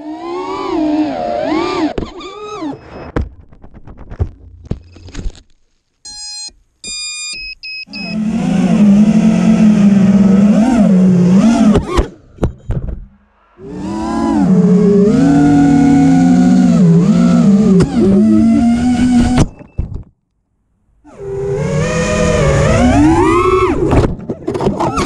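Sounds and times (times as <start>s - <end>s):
drone motors whining: 0.0s - 3.1s, 7.9s - 19.7s, 21.0s - 24.1s
electronic beeps: 6.1s - 8.2s, 12.3s - 13.6s.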